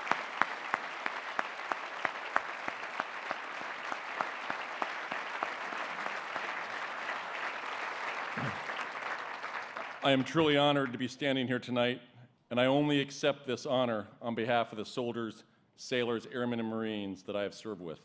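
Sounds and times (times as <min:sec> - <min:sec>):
audience applauding: 0:00.0 - 0:11.0.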